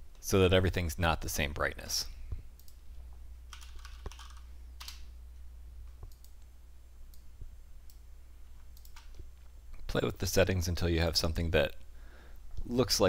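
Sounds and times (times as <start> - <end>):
faint low hum: 0.0 - 13.0
keyboard and mouse clicks: 2.6 - 2.8, 3.5 - 5.1, 5.8 - 6.5, 8.6 - 9.4.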